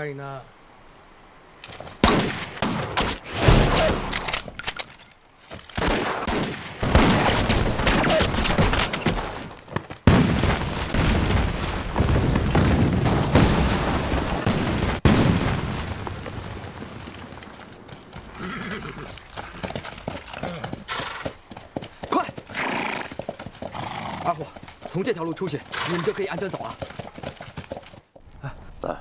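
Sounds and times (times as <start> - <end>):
rifle and machine-gun shots: 2.0 - 4.2, 5.8 - 9.5
explosions: 5.8 - 9.4, 10.0 - 17.6.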